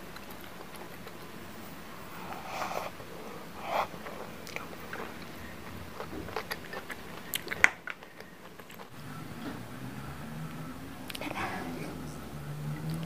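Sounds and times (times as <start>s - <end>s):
wet chewing with mouth clicks: 0.0s - 9.8s, 12.7s - 13.0s
slurping noodles: 2.0s - 9.7s.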